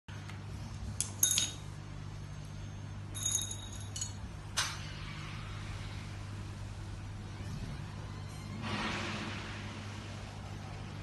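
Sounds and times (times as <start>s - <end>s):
steady low hum: 0.1s - 11.0s
small parts clinking and tapping: 1.0s - 1.7s, 3.2s - 4.2s.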